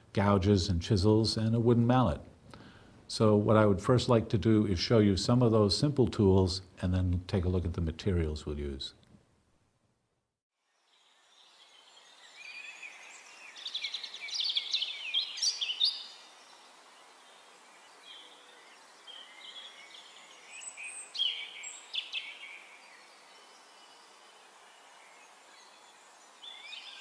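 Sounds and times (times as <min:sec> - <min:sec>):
steady outdoor hiss: 0:00.0 - 0:09.9, 0:10.6 - 0:27.0
songbirds chirping and trilling: 0:10.7 - 0:27.0.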